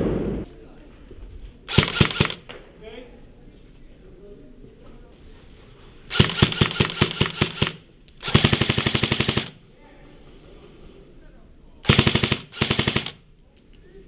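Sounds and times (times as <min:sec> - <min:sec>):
airsoft rifle firing full-auto: 0:01.7 - 0:02.5, 0:06.1 - 0:09.6, 0:11.8 - 0:13.3.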